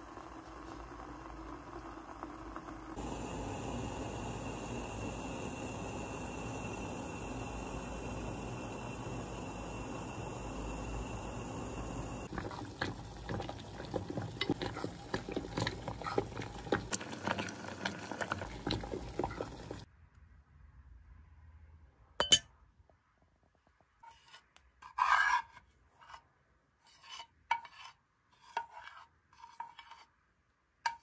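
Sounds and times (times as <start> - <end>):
steady hiss: 2.8 - 12.3
spoon clinking and scraping bowl: 11.8 - 19.8, 26.8 - 30.1.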